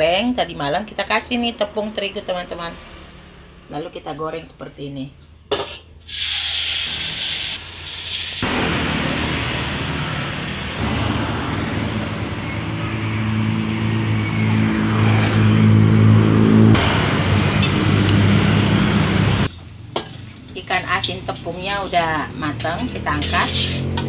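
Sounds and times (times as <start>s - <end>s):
street traffic: 0.0s - 4.4s, 7.1s - 24.0s
oil hissing in a wok: 6.0s - 9.2s
motorbikes riding past: 8.4s - 19.5s, 20.9s - 24.0s.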